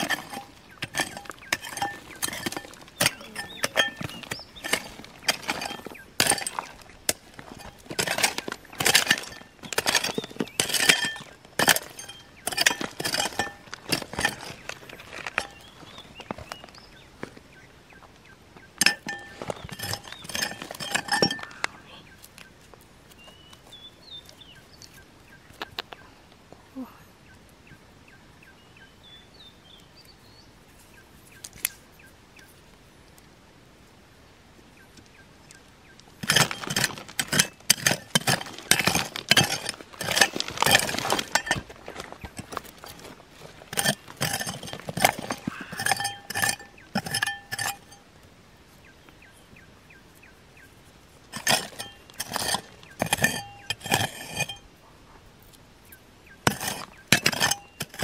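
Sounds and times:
hard objects clinking together: 0.0s - 16.0s, 18.8s - 21.7s, 36.2s - 43.1s, 43.7s - 48.0s, 51.3s - 54.7s, 56.4s - 58.0s.

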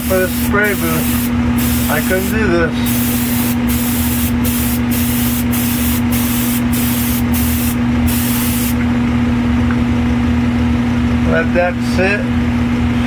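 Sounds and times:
airbrush spraying hiss: 0.0s - 8.8s.

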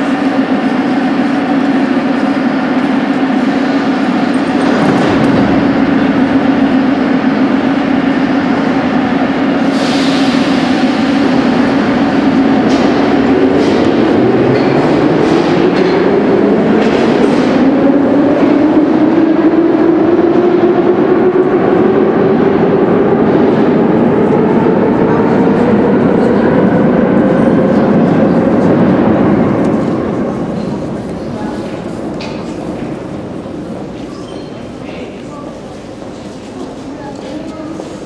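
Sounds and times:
train hum: 0.0s - 38.0s
hiss of air: 9.6s - 11.0s.

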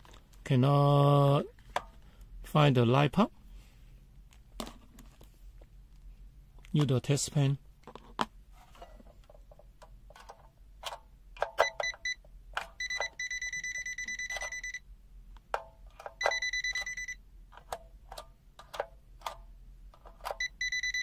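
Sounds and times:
multimeter beeping: 11.4s - 14.8s, 16.1s - 17.2s, 20.3s - 21.0s.

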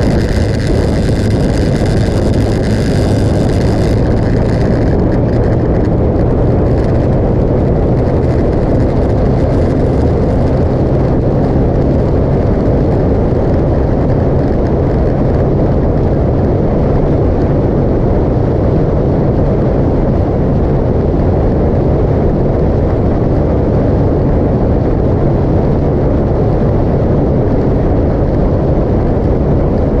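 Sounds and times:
motorcycle engine running: 0.0s - 18.5s
wind noise: 0.0s - 30.0s.

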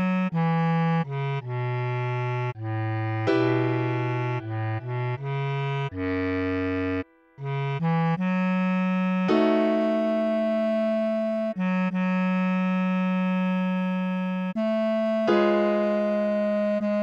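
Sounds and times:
bass clarinet melody: 0.0s - 17.0s
piano chords: 2.9s - 7.9s, 9.2s - 11.6s, 14.5s - 17.0s.

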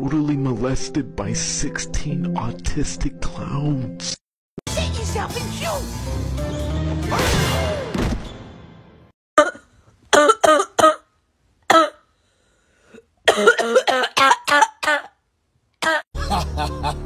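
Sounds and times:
woman coughing hoarsely: 9.4s - 11.1s, 11.7s - 12.0s, 13.3s - 15.2s, 15.8s - 16.5s.

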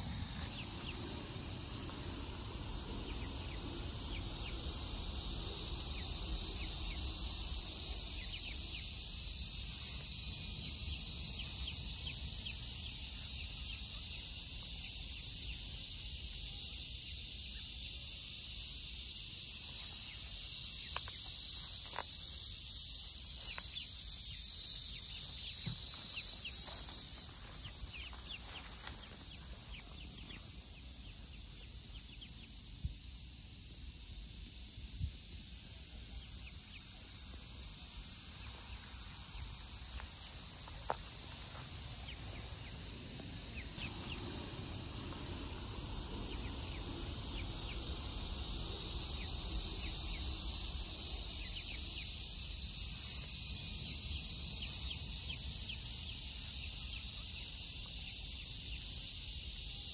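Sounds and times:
faint ticks and chirps: 0.0s - 59.9s
high-pitched insect chorus: 0.0s - 59.9s
low rumble: 42.5s - 51.4s.

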